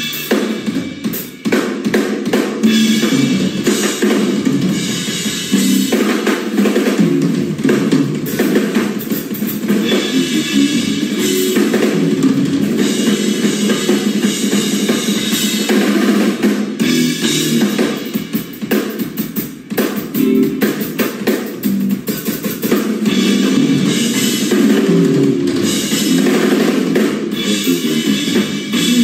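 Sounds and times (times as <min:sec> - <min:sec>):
drum kit: 0:00.0 - 0:29.0
bass guitar: 0:02.6 - 0:15.6, 0:16.8 - 0:18.3, 0:20.0 - 0:29.0
electric guitar: 0:09.6 - 0:15.4, 0:20.1 - 0:22.4, 0:23.0 - 0:29.0.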